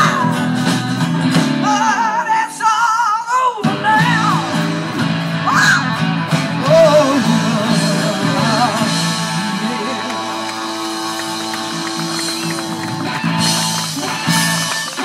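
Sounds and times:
person singing: 0.0 - 6.0, 6.6 - 12.4
electric guitar: 0.0 - 15.0
live rock band: 0.0 - 15.0.

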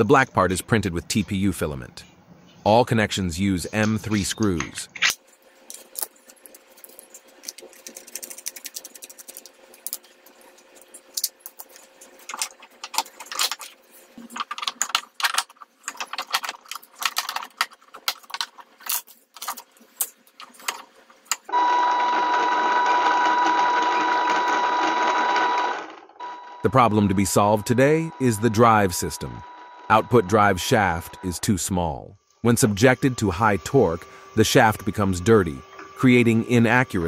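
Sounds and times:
plastic parts clicking and knocking: 11.1 - 21.5
loud mechanical noise with high tone: 26.2 - 31.6, 32.6 - 37.0.

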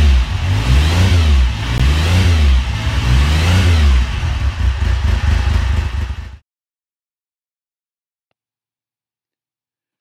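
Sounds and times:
motorcycle engine revving: 0.0 - 6.4.

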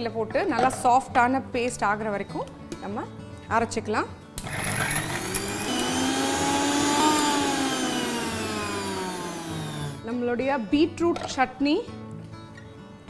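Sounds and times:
mixer grinder motor whirring: 4.4 - 10.1.

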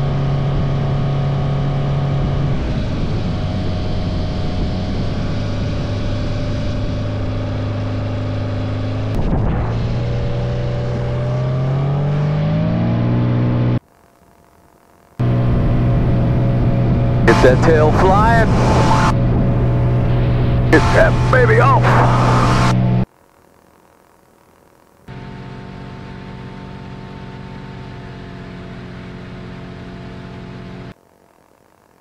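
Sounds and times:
light aircraft engine and propeller: 0.0 - 32.0.

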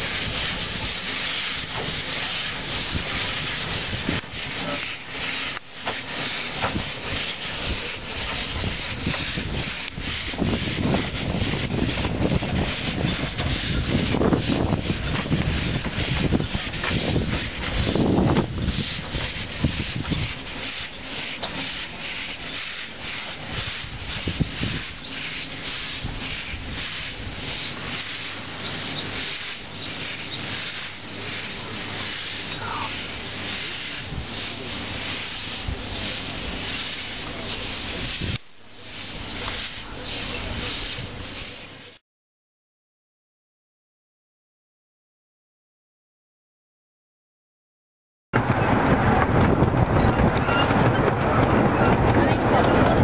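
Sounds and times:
steam hissing: 0.0 - 42.0
steam locomotive exhaust chuffs: 0.0 - 42.0.

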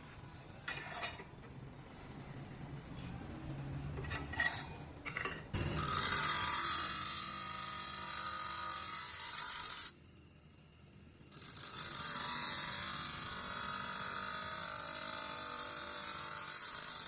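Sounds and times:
grinding wheel grinding metal: 5.6 - 10.0, 11.3 - 17.0.

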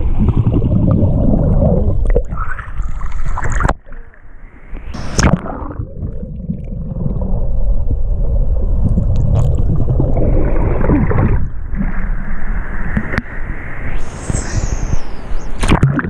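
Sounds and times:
water splashing against camera: 15.6 - 16.0.

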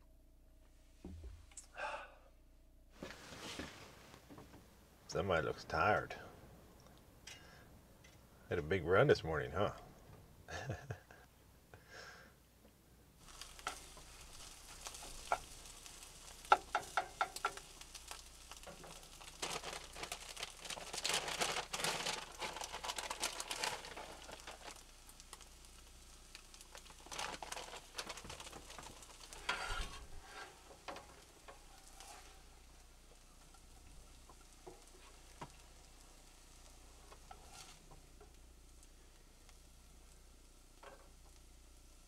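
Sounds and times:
food sizzling: 13.2 - 42.0
scraping and stirring in pan: 13.2 - 42.0.

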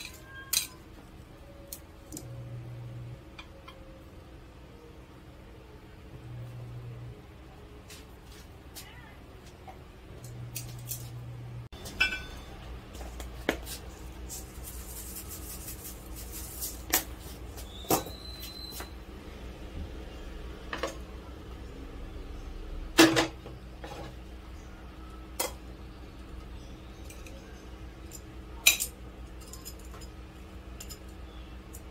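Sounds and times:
tongs and plates clacking: 0.0 - 0.9, 27.0 - 31.9
steady low hum: 0.0 - 17.8.

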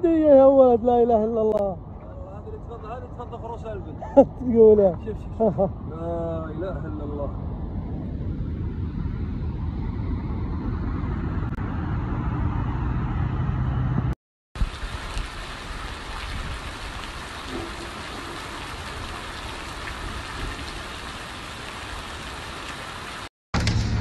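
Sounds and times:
wind rumbling on microphone: 4.3 - 21.6
rain falling on ground: 14.6 - 23.3.

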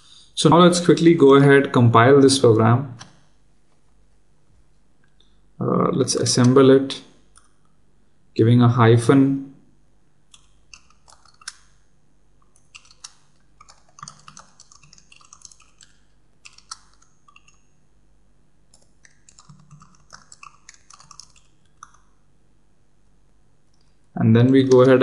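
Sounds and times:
computer keyboard keys clacking: 10.4 - 11.7, 12.6 - 17.7, 18.7 - 22.1.

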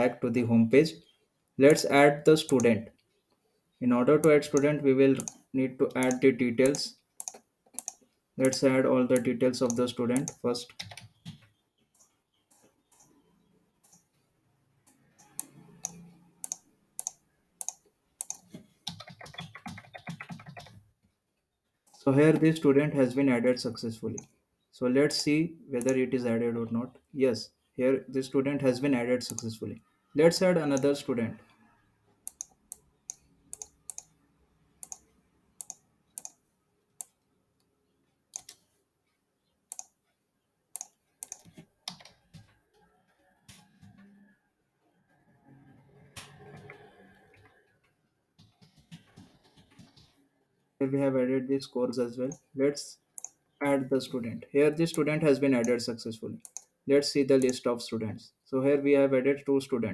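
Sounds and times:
mouse clicks: 1.6 - 2.8, 4.2 - 13.2, 15.2 - 20.7, 29.3 - 29.6, 30.6 - 31.0, 32.2 - 34.2, 34.8 - 36.4, 38.3 - 38.6, 39.7 - 40.0, 40.7 - 42.5, 53.2 - 53.6, 56.4 - 56.7, 57.4 - 57.6
keyboard keystrokes: 6.0 - 8.7, 15.3 - 20.8.

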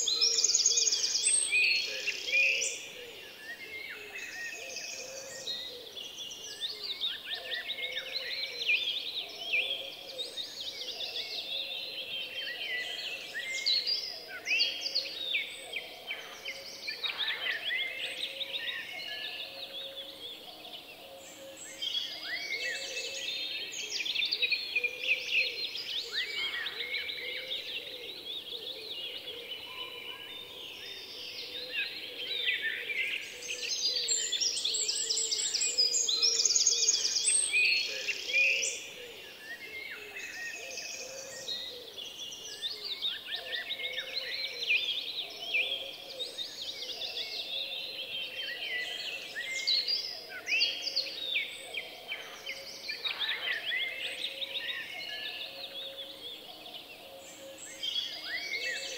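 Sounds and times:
small birds chirping: 0.0 - 2.9.

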